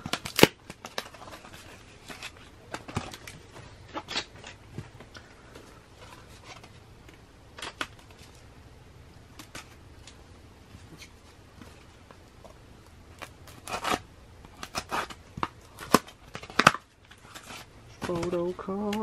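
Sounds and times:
cardboard and tape being cut: 0:00.0 - 0:03.3, 0:13.2 - 0:18.4.

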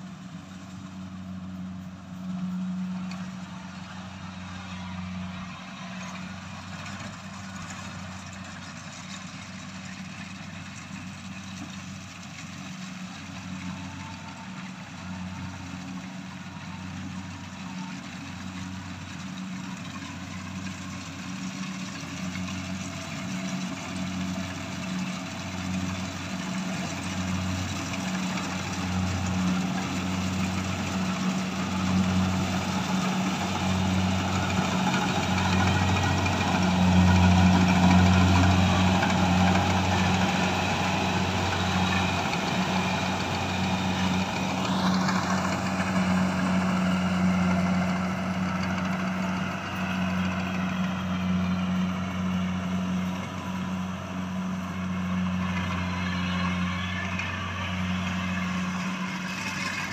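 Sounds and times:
diesel engine drone: 0:00.0 - 0:59.9
whine rising in pitch: 0:30.4 - 0:59.9.

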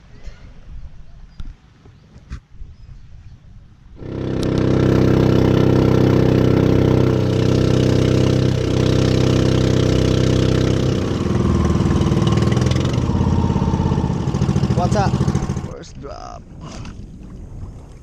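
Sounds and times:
boat engine running: 0:04.0 - 0:15.9
water rushing past hull: 0:04.0 - 0:18.0.

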